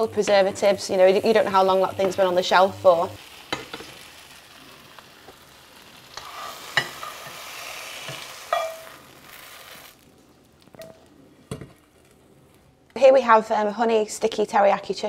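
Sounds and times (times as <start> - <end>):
chicken sizzling in frying pan: 0.0 - 10.8.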